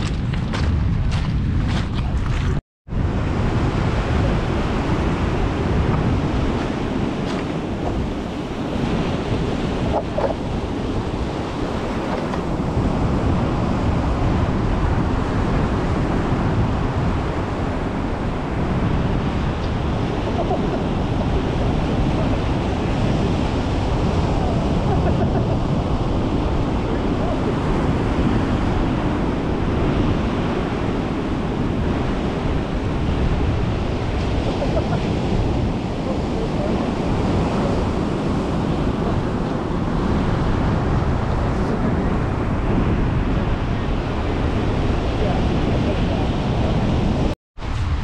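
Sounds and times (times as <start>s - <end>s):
ocean surf washing on beach: 0.0s - 48.0s
wind buffeting microphone: 0.0s - 48.0s.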